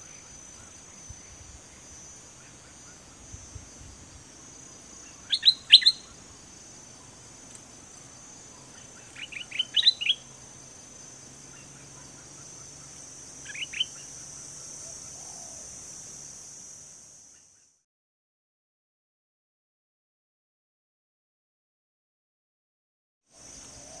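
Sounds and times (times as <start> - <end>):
high-pitched insect buzz: 0.0 - 17.8
bulbul singing: 4.6 - 7.3, 8.4 - 10.6, 11.4 - 15.7.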